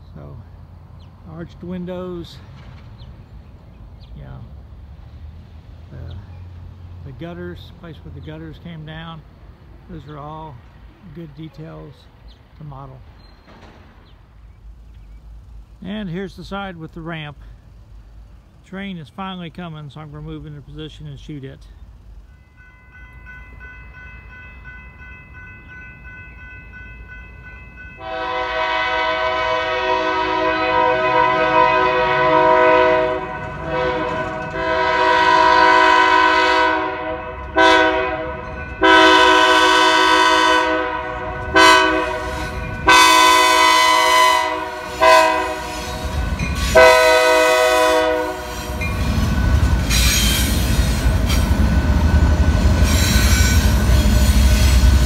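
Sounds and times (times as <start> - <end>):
locomotive engine rumble: 0.0 - 55.0
train wheel noise: 0.0 - 55.0
locomotive air horn blasts: 28.0 - 49.2.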